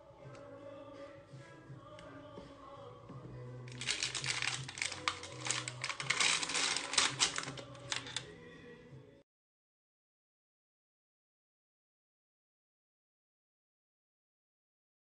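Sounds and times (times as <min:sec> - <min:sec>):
baking paper crackling: 0:03.7 - 0:08.2.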